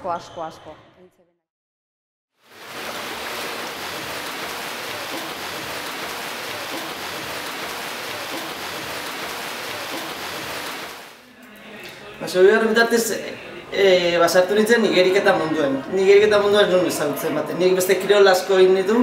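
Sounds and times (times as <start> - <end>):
rushing water: 2.4 - 11.2.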